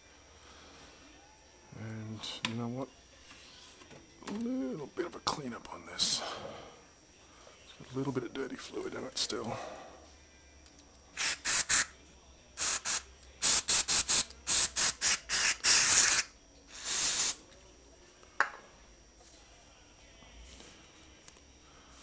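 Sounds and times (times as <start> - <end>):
aerosol spray hissing bursts: 11.2 - 11.9, 12.6 - 17.4.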